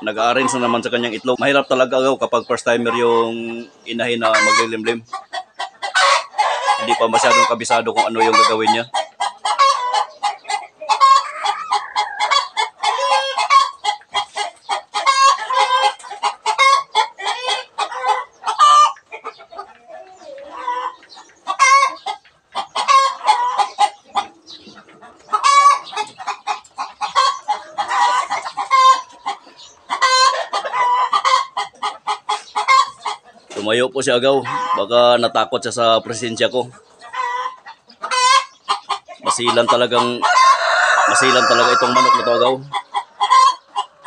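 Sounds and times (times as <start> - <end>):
chickens clucking: 0.0 - 44.0.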